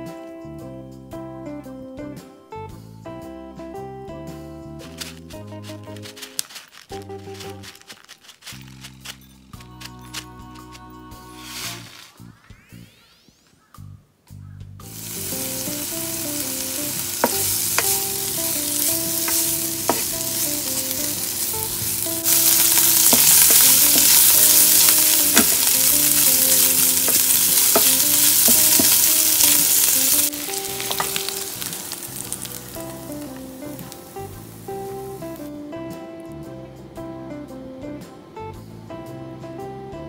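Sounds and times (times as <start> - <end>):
meat sizzling in a frying pan: 14.9 - 35.5
spatula tapping a pan: 15.2 - 34.0.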